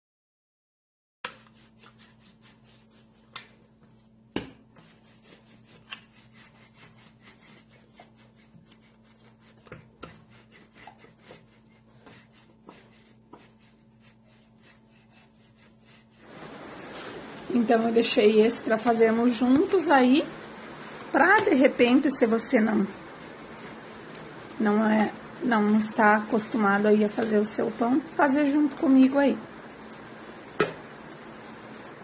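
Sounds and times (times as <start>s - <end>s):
rolling pin rubbing on dough: 1.2s - 21.7s.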